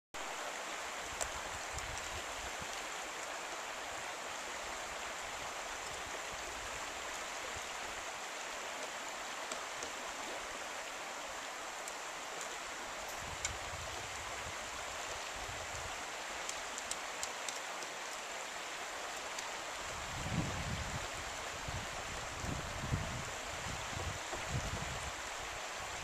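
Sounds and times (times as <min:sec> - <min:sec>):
creek water running: 0:00.2 - 0:26.0
faint sharp clicks: 0:01.1 - 0:02.1, 0:16.4 - 0:18.3.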